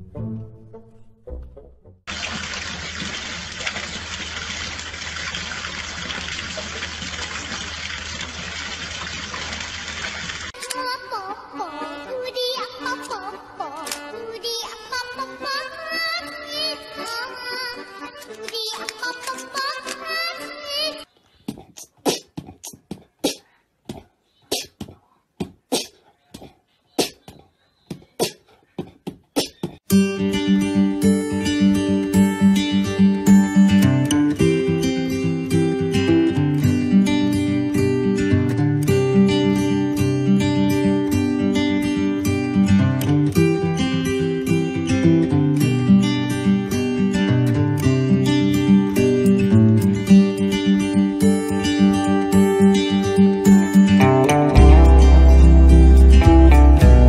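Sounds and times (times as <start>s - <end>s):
fountain water pouring over stone: 2.1s - 10.6s
strummed guitar music: 29.9s - 57.0s.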